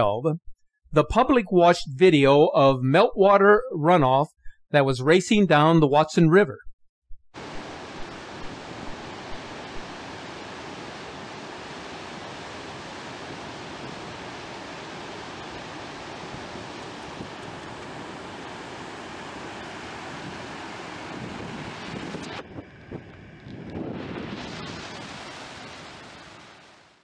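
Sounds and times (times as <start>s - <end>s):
river torrent rushing: 7.4s - 22.4s.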